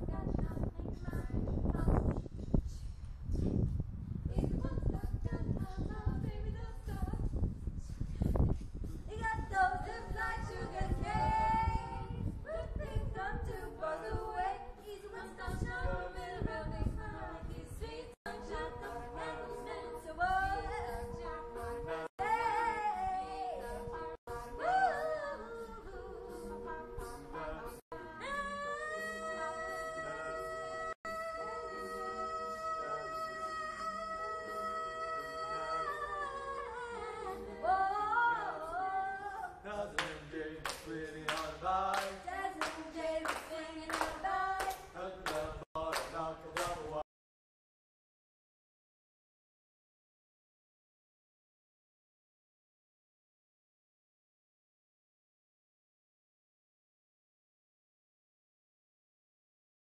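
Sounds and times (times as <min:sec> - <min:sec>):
choir singing a cappella: 0:09.2 - 0:47.0
rhythmic hand claps: 0:39.9 - 0:47.0.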